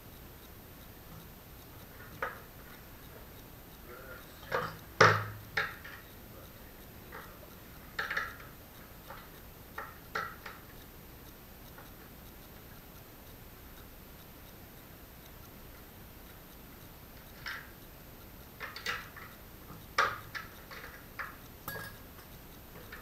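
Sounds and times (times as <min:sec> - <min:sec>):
tools being handled: 0:20.0 - 0:23.0.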